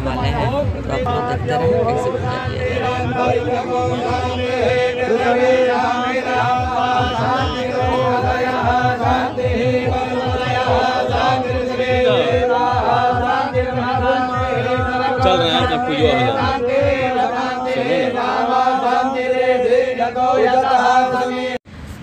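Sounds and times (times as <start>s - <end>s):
fast low beat: 0.0s - 17.5s
voices chanting: 0.0s - 21.6s.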